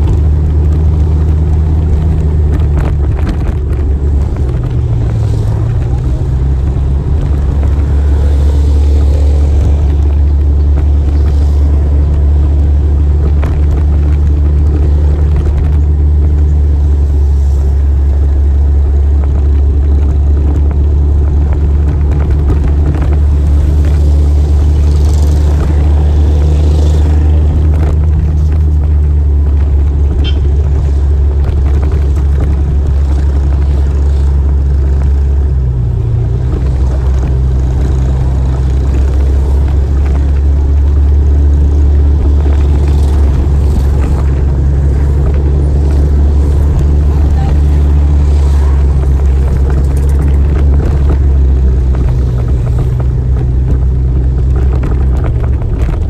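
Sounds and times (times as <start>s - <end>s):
motorcycle engine rumbling: 0.0s - 56.0s.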